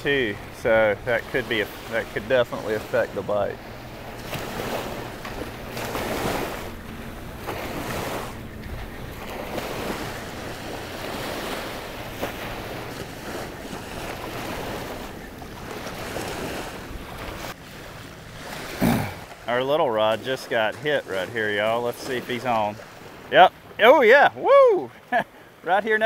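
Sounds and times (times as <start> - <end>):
wind buffeting microphone: 0.0 - 19.4
small waves washing on sand: 0.0 - 26.0.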